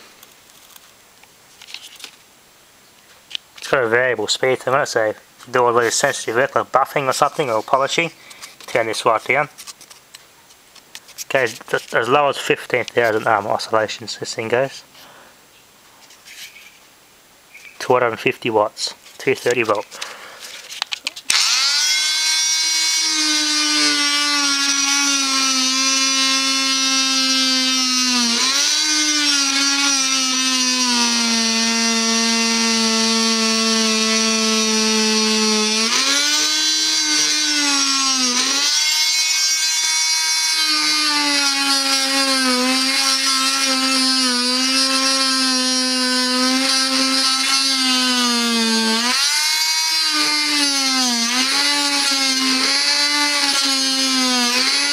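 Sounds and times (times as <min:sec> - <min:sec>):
oscillating saw cutting wood: 0:21.3 - 0:54.9.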